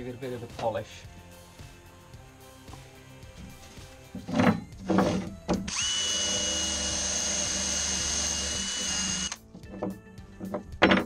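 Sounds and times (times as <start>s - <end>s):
drill spinning wire brush on metal: 4.3s - 9.4s.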